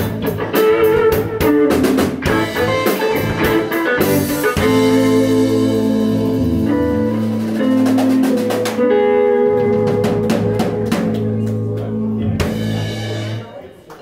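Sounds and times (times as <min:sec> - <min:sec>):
drum and cymbal hits: 0:00.0 - 0:08.9, 0:12.3 - 0:13.4
electric bass: 0:00.0 - 0:13.5
electric guitars: 0:00.0 - 0:13.5.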